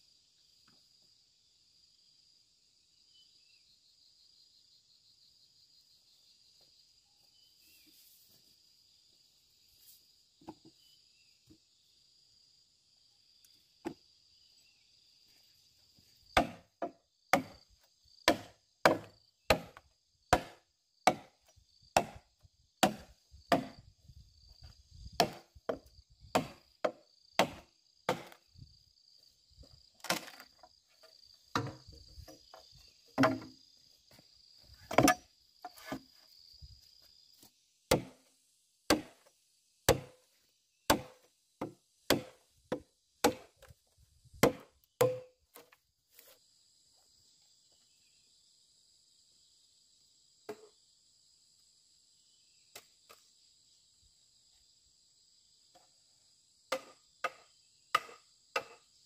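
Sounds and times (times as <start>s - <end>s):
insects droning: 0.0s - 59.0s
lone knocks: 33.2s - 33.6s.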